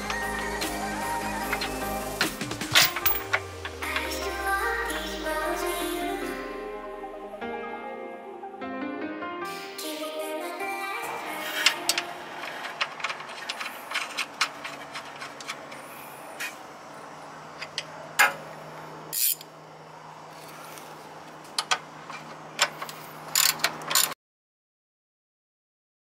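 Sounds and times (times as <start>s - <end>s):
steel tools clinking: 1.3s - 4.0s, 11.5s - 15.8s
wrench ratcheting clicks: 19.1s - 19.5s, 22.6s - 24.2s.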